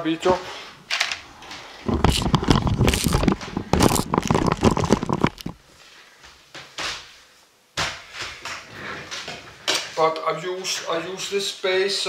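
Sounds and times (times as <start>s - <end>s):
camera handling noise: 1.9s - 5.6s.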